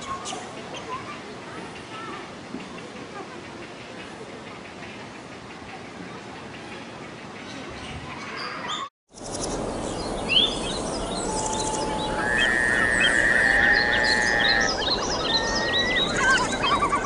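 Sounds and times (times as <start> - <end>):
bird chirps and whistles: 10.3 - 17.0
long whistled note: 10.4 - 16.5.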